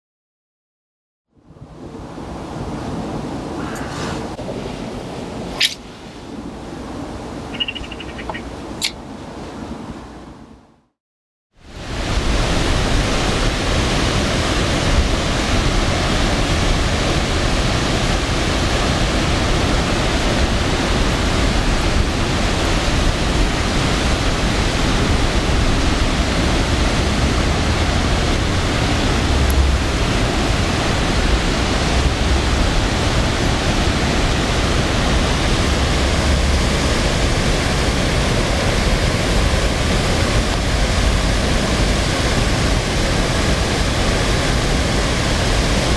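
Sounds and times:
river rushing over rapids: 11.6 - 45.9
low rumbles: 24.6 - 45.4.

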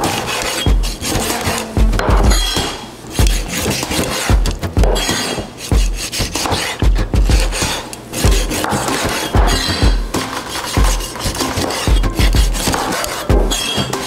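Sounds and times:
knife cutting raw chicken: 0.0 - 1.8, 2.5 - 14.0
background music with bass beat: 0.6 - 2.6, 6.8 - 14.0.

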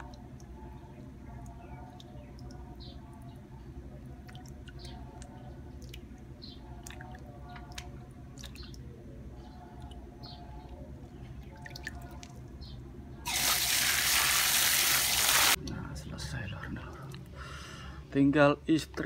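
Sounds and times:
water dripping: 1.4 - 2.7, 4.2 - 8.9, 11.4 - 12.6.

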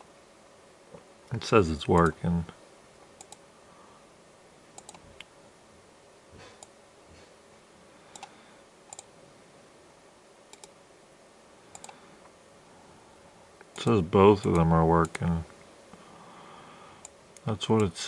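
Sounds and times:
computer mouse clicks: 3.2 - 3.4, 4.8 - 5.3, 8.1 - 8.3, 8.9 - 9.1, 10.5 - 10.8, 11.7 - 12.0.

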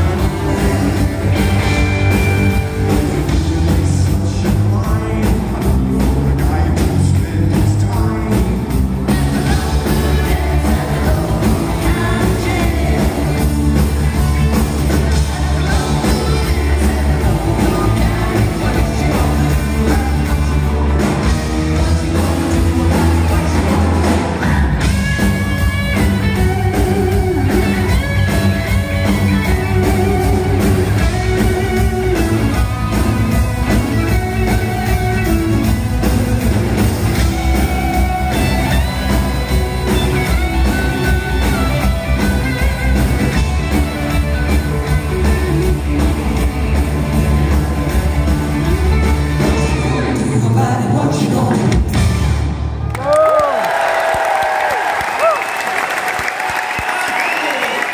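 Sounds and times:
person singing: 0.0 - 25.0, 48.7 - 51.9
bass guitar: 0.0 - 54.4
drums: 0.0 - 57.9
electric guitars: 0.0 - 57.9.

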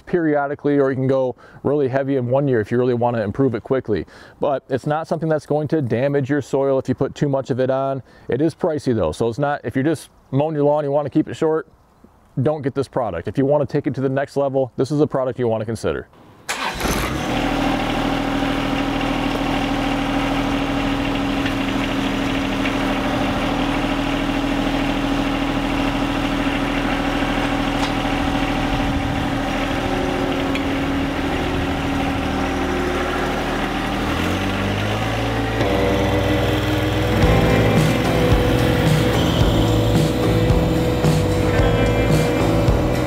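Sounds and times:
tractor diesel engine idling: 16.5 - 43.0.

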